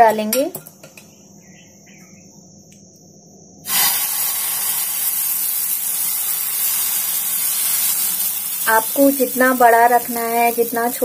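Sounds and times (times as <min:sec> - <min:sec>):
batter sizzling on a pan: 0:03.7 - 0:11.0.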